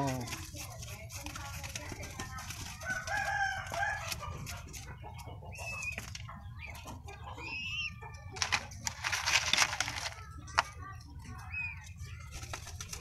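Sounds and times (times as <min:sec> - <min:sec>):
wavering bird calls: 0:02.9 - 0:09.0, 0:11.2 - 0:13.0
rustling and clicks: 0:08.4 - 0:10.8.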